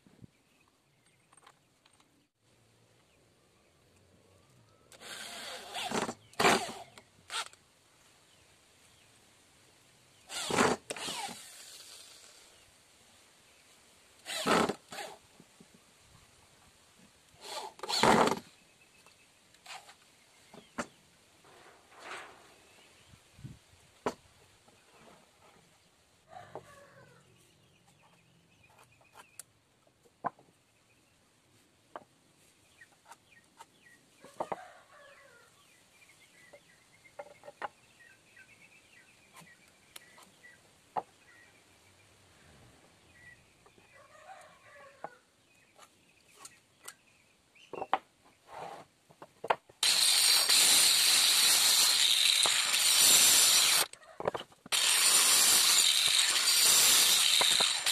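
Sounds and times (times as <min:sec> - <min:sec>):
electric saw cutting wood: 0:04.9 - 0:07.5, 0:10.3 - 0:12.4, 0:14.3 - 0:15.2, 0:49.8 - 0:54.0, 0:54.7 - 0:57.9.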